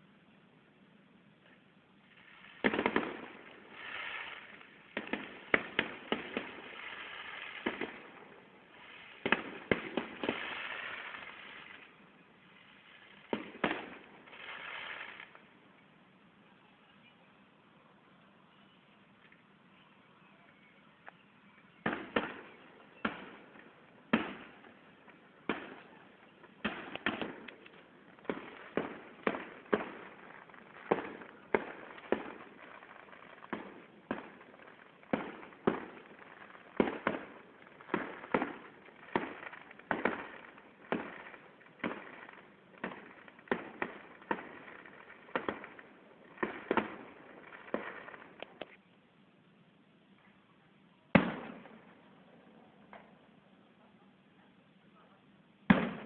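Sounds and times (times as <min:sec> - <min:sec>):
fireworks bursting with bangs: 0:01.4 - 0:15.6, 0:21.7 - 0:48.8, 0:51.1 - 0:53.4, 0:55.6 - 0:56.0.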